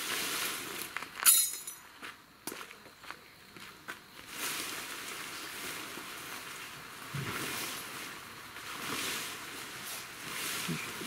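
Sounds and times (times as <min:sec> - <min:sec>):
tarp fabric rustling: 0:00.0 - 0:01.3, 0:04.2 - 0:11.0.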